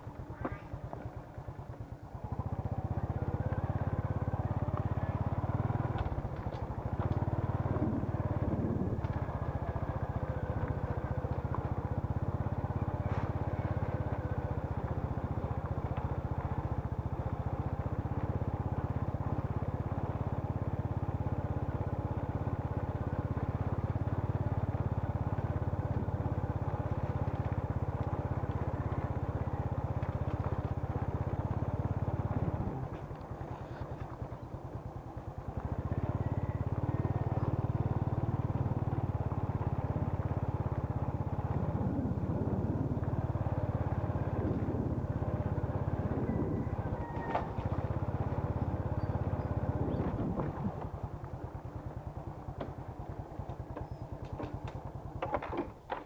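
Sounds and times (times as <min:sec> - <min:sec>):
small motorcycle engine running: 0:00.0 - 0:56.0.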